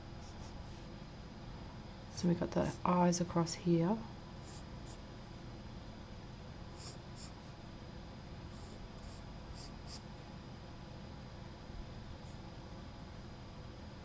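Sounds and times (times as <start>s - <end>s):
low room hum: 0.0s - 14.0s
pencil scratching on paper: 6.8s - 7.6s, 8.5s - 10.1s.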